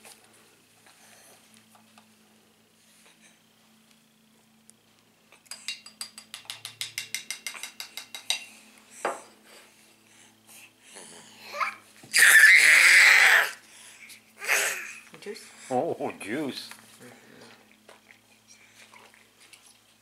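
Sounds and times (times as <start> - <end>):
baby babbling: 11.4 - 13.6, 14.4 - 15.0
baby screaming: 11.4 - 13.6, 14.4 - 15.0.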